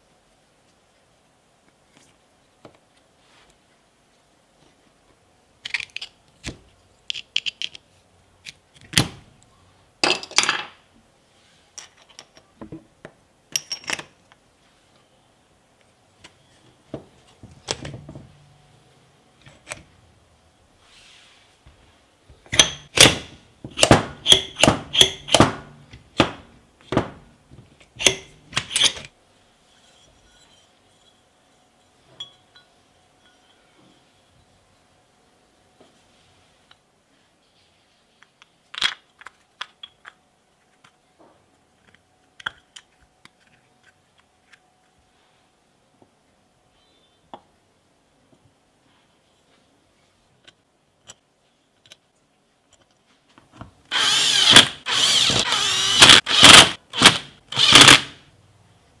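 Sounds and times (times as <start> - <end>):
clicks and clinks of parts: 5.6 - 7.8.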